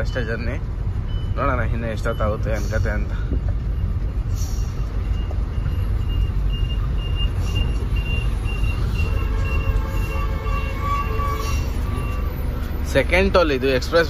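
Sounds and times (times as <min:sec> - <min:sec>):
truck engine rumble: 0:00.0 - 0:14.0
high electronic beeps: 0:03.7 - 0:12.6.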